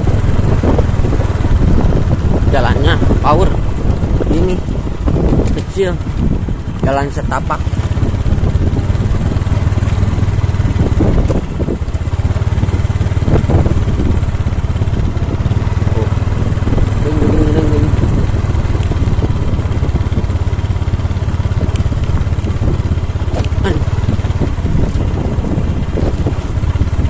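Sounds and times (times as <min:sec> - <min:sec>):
motorcycle engine running: 0:00.0 - 0:27.0
knocks from rough track: 0:10.9 - 0:11.8, 0:23.2 - 0:23.7.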